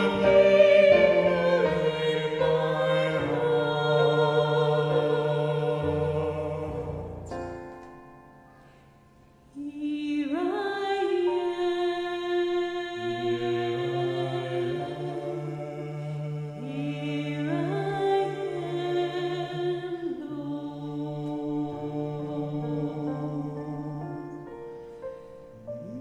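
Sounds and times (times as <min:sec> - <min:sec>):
man and woman singing a hymn: 0:00.0 - 0:07.4, 0:09.6 - 0:24.9
piano accompaniment: 0:00.0 - 0:09.3, 0:20.8 - 0:26.0.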